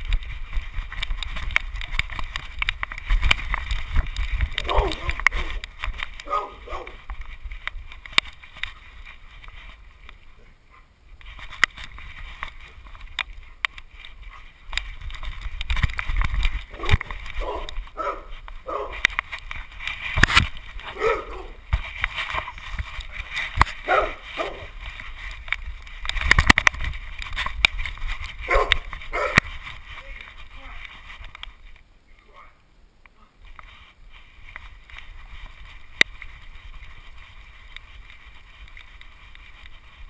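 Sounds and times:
camera handling knocks and rumbling: 19.0 - 20.8, 25.4 - 29.7.

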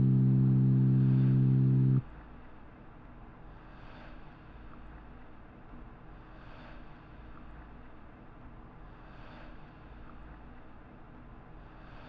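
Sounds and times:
low ambient drone: 0.0 - 2.0.

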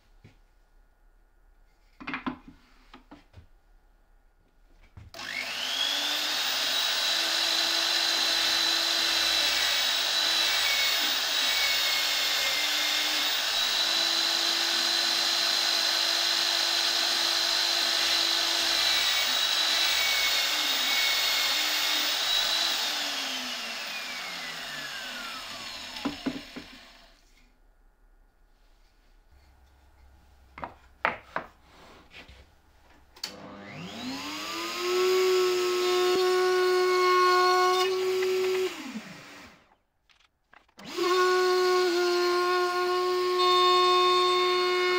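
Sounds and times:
drill bit drilling plywood: 5.2 - 27.1, 33.6 - 39.8, 40.8 - 44.9
drill press motor whining: 5.2 - 27.1, 33.3 - 39.8.

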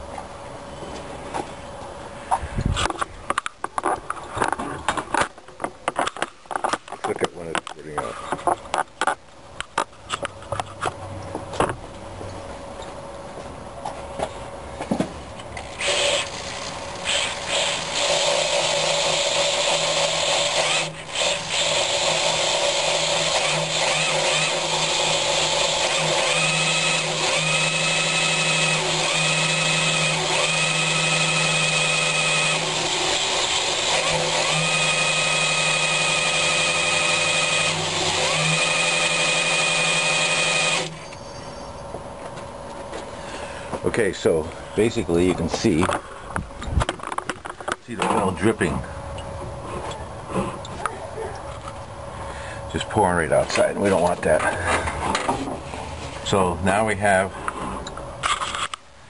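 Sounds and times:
electric drill running: 15.6 - 41.0
high-pitched whine: 40.6 - 42.1.

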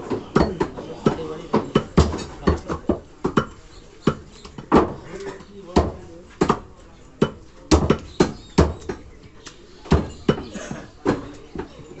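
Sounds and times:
knife chopping meat on wood: 7.2 - 9.0.

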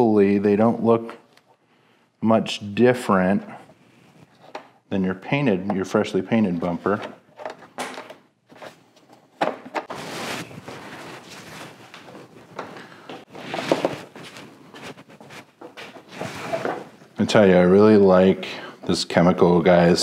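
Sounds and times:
cloth wiping plastic: 9.8 - 12.5, 13.3 - 16.8
small knocks and rustles: 10.6 - 17.0.

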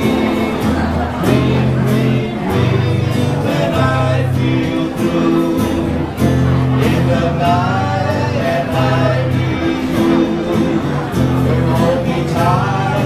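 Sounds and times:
two men singing: 0.0 - 13.0.

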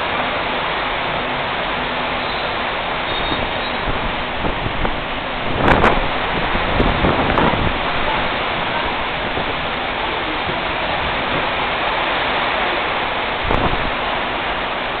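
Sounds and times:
heavy rain falling: 0.0 - 15.0
low thunder rumble: 3.2 - 9.8, 13.4 - 14.0.

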